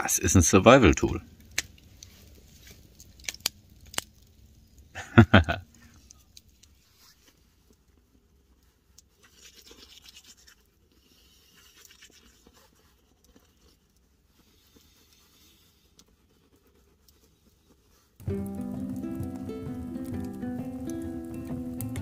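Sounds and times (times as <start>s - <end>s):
toothbrush scrubbing teeth: 9.0s - 18.1s.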